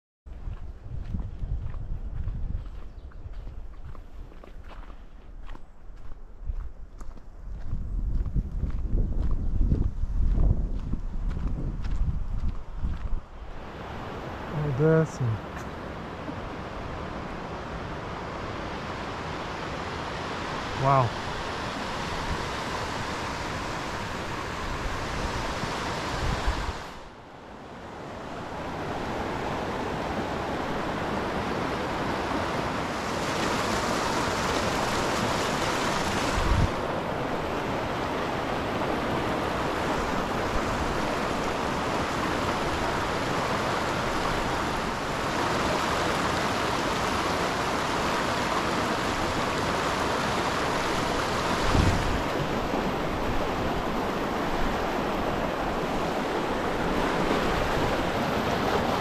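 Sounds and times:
stream rushing over rocks: 0:13.4 - 0:59.0.

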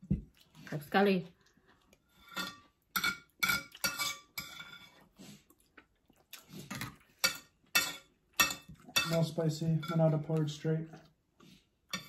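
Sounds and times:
spoon clinking against bowl: 0:07.2 - 0:10.2.

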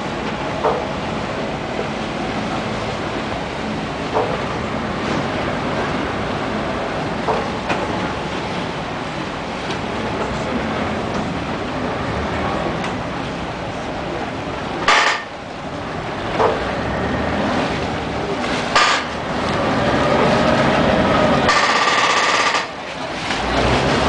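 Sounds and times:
boat engine rumble: 0:00.0 - 0:24.0
churning water: 0:00.0 - 0:24.0
harsh rushing water: 0:00.0 - 0:24.0
sharp knocks: 0:14.9 - 0:15.3.

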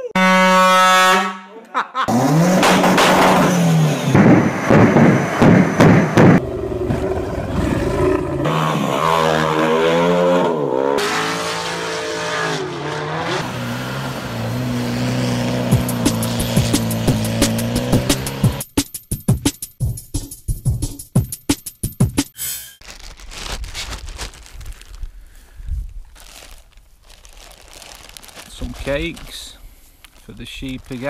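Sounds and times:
engine revving hard: 0:02.1 - 0:18.6
loud knocks and rattles: 0:04.2 - 0:06.4.

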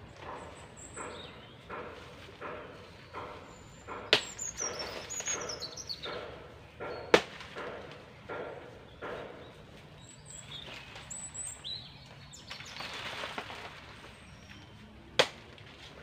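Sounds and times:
bird chirping: 0:00.0 - 0:13.1
machete chopping: 0:03.9 - 0:09.3, 0:15.2 - 0:15.5
dry leaves rustling: 0:09.5 - 0:16.0.

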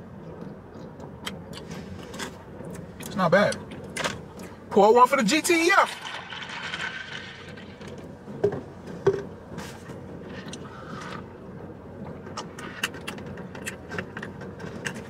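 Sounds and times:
juice pouring into cup of ice: 0:05.7 - 0:08.0.

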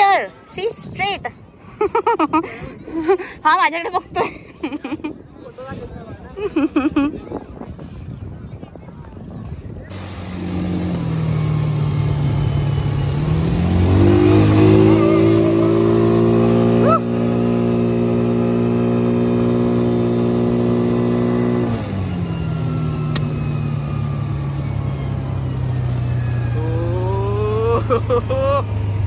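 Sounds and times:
quad bike engine revving: 0:09.9 - 0:29.0.

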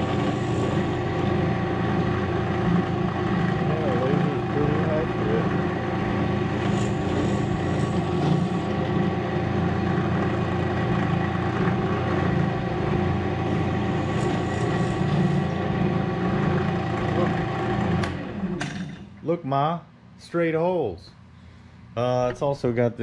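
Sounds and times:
drill bit boring into wood: 0:00.0 - 0:18.2
drill press motor humming: 0:00.0 - 0:19.2.

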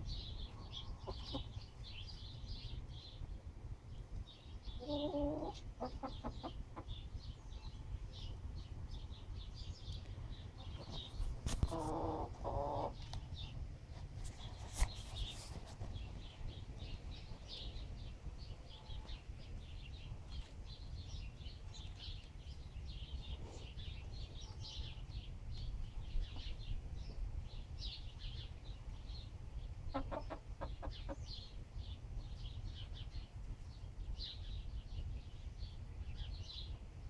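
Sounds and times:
wind rumble on microphone: 0:00.0 - 0:37.0
hen clucking: 0:00.7 - 0:01.6, 0:04.8 - 0:07.0, 0:11.6 - 0:13.2, 0:29.9 - 0:31.3.

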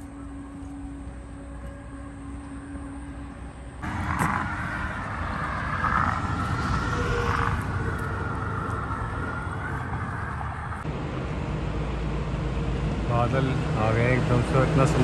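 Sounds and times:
highway traffic rumble: 0:00.0 - 0:15.0
vehicle passing: 0:03.7 - 0:15.0.

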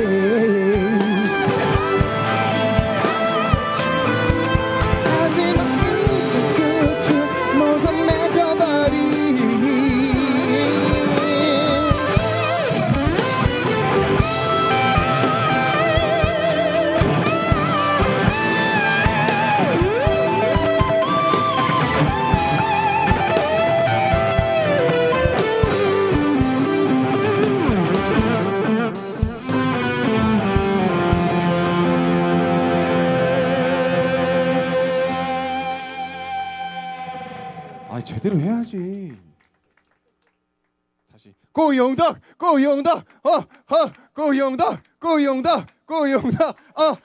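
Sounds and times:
steady drum beat: 0:00.0 - 0:31.6
held band chords: 0:00.0 - 0:38.6
electric guitar lead: 0:00.0 - 0:39.4.

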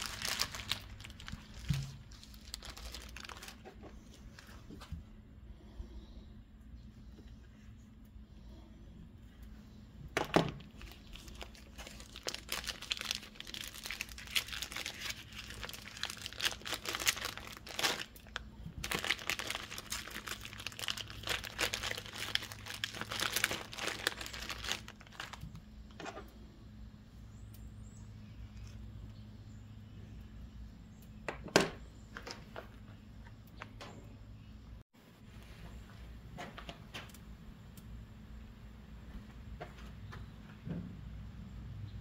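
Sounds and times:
plastic wrapper crinkling and tearing: 0:00.0 - 0:04.6, 0:10.5 - 0:25.6.

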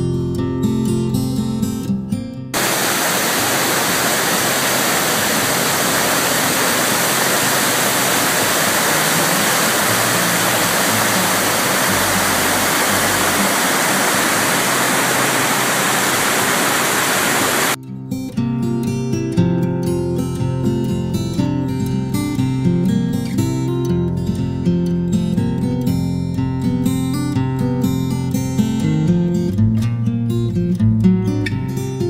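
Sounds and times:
waterfall rushing: 0:02.6 - 0:17.8.

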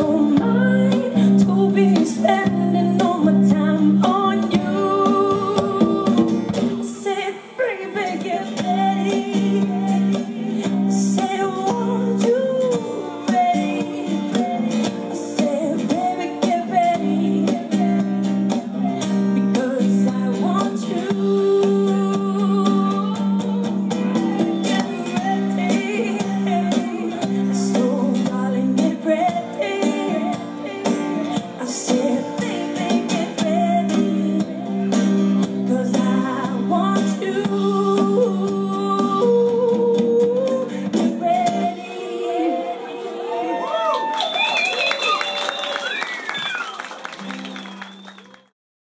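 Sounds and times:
woman singing: 0:00.0 - 0:43.8
strummed acoustic guitar: 0:08.0 - 0:42.1.

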